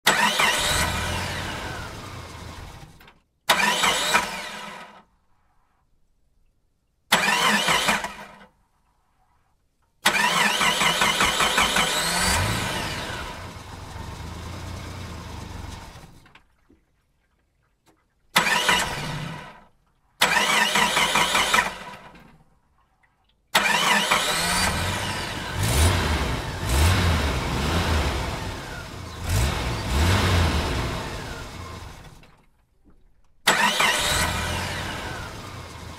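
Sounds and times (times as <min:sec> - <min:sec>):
vehicle engine starting: 0:00.0 - 0:05.1, 0:07.1 - 0:08.5, 0:10.0 - 0:16.5, 0:18.4 - 0:22.4, 0:23.5 - 0:32.6, 0:33.4 - 0:35.9
engine revving: 0:00.1 - 0:04.8, 0:10.1 - 0:16.2, 0:23.6 - 0:32.2, 0:33.5 - 0:35.9.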